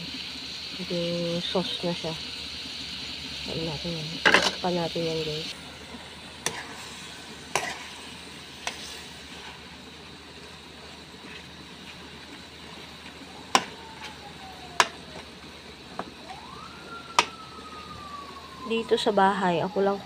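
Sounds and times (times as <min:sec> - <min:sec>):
sauce sizzling in a metal pan: 0:00.0 - 0:20.0
spatula striking a pan: 0:06.4 - 0:06.7, 0:07.5 - 0:07.9, 0:13.5 - 0:13.8, 0:14.8 - 0:15.0.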